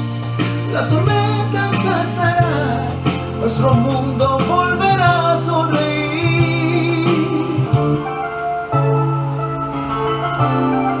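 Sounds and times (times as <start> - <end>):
electronic keyboard music: 0.0 - 11.0
person singing: 0.6 - 8.1.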